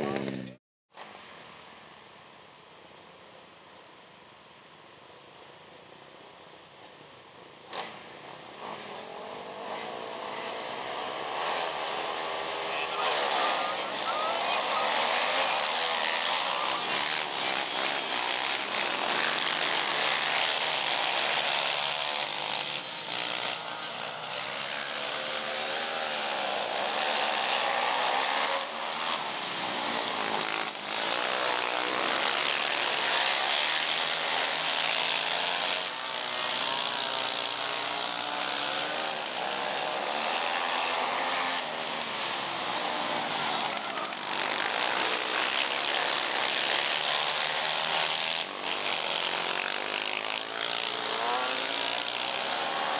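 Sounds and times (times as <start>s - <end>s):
racing atv engines revving: 0.0s - 1.2s, 7.6s - 52.9s.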